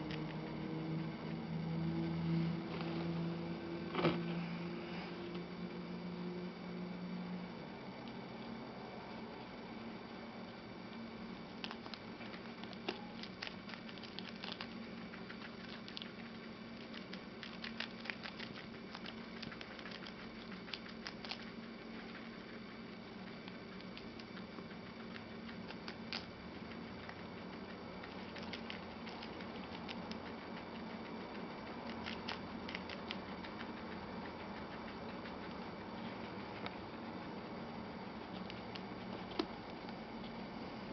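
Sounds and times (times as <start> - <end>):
guinea pig crunching lettuce: 0.0 - 1.4, 10.9 - 40.5
steady low hum: 0.0 - 40.9.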